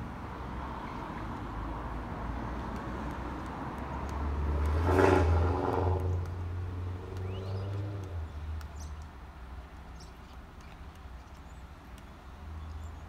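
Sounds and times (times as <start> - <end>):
motor vehicle passing: 0.4 - 8.9.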